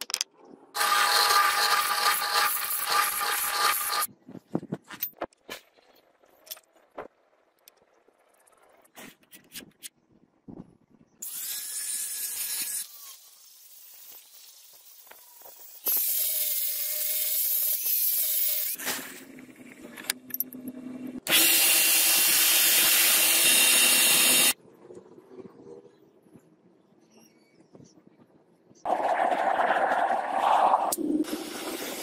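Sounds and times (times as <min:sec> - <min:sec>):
power tool whining: 0:00.8 - 0:04.1, 0:21.2 - 0:24.6.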